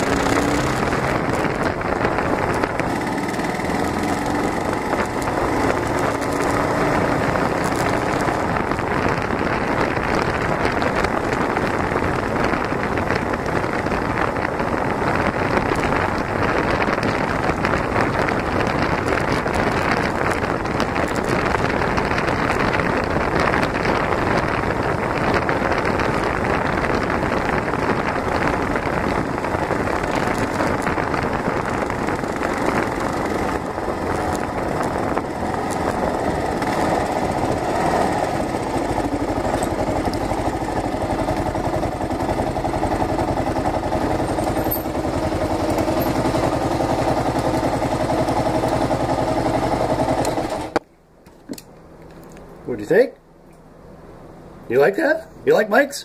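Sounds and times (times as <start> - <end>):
motorcycle engine running: 0.0 - 50.8
wind rushing over microphone: 0.0 - 50.8.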